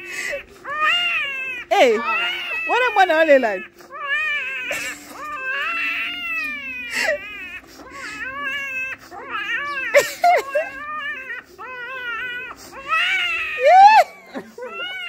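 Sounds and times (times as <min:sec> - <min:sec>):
man crying in high wail: 0:13.4 - 0:15.0.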